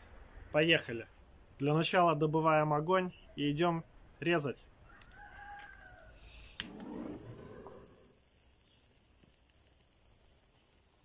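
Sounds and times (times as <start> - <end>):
faint steady hiss: 0.0 - 11.0
gas torch rushing: 6.1 - 11.0.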